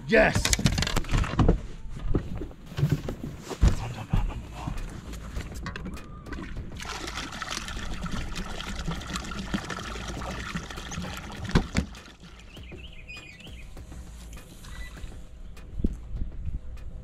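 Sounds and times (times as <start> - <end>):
water trickling and splashing: 5.4 - 14.5.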